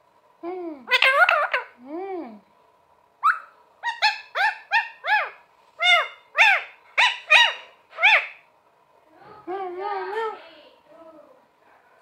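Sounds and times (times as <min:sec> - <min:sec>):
parakeet calling: 0:00.9 - 0:01.8, 0:03.2 - 0:08.5.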